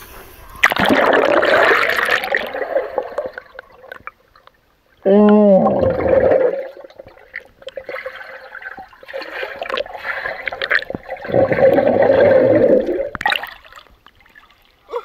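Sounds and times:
muffled underwater rushing and bubbling: 0.0s - 4.4s, 5.7s - 13.6s
water splash: 0.6s - 4.1s, 5.7s - 14.6s.

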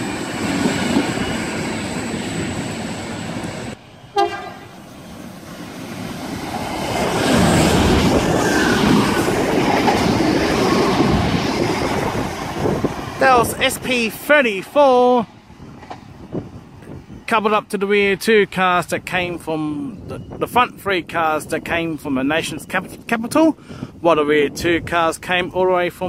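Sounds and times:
diesel train running: 0.0s - 23.9s
train horn blast: 4.1s - 4.8s.

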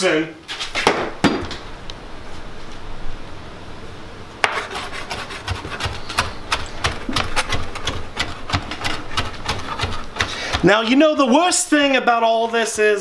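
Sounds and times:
knife chopping on cutting board: 4.4s - 10.8s.

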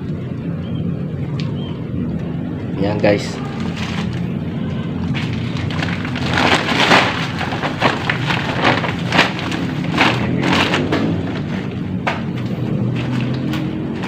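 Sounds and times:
steady low hum: 0.0s - 13.2s
rubble scraping and rattling: 5.1s - 11.8s.

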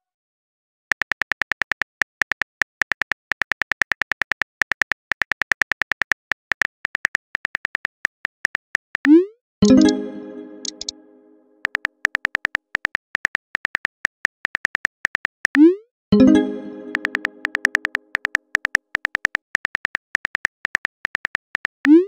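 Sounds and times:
phone keyboard clicks: 11.6s - 15.4s, 16.9s - 22.0s.

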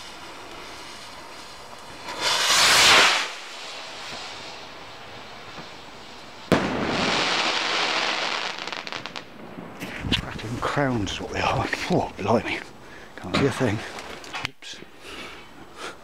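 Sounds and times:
firework rocket rushing hiss: 0.0s - 10.2s
firework crackling: 0.0s - 12.8s
firework bang: 2.0s - 4.6s, 6.5s - 10.4s.

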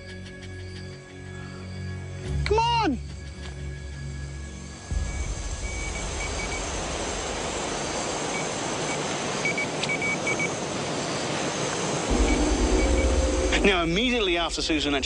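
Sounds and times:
loud rushing noise: 12.1s - 15.0s.

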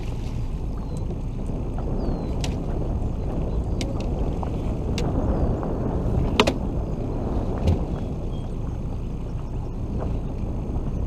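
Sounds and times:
boat engine rumble: 0.0s - 11.0s.

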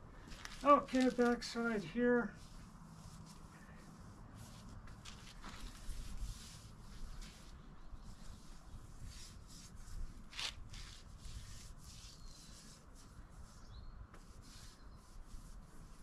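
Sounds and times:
shuffling and rustling: 0.2s - 12.4s.

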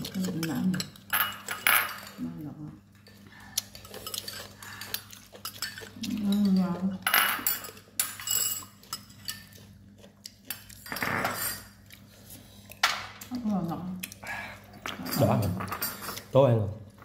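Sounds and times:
spoons clinking against ceramic bowls: 0.0s - 2.2s, 3.7s - 9.7s.

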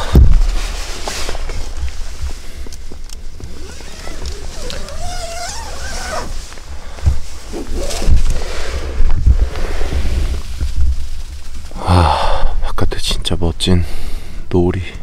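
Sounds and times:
wind buffeting microphone: 6.6s - 12.6s.

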